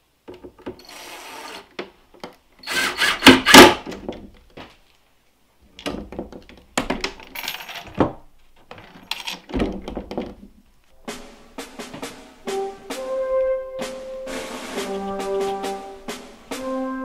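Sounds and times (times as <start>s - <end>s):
metal chain jingling and rattling: 7.2s - 8.0s, 8.8s - 9.5s.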